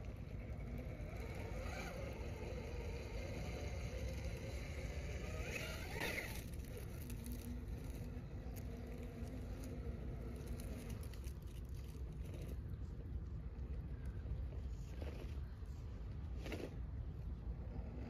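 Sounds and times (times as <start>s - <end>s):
small electric motor whining: 0.0s - 11.4s
tyres and pebbles clicking on rock: 5.5s - 12.6s.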